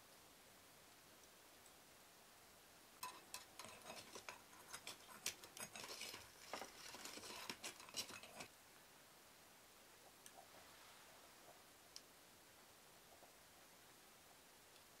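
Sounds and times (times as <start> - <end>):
metal tongs clinking on charcoal: 3.0 - 8.5.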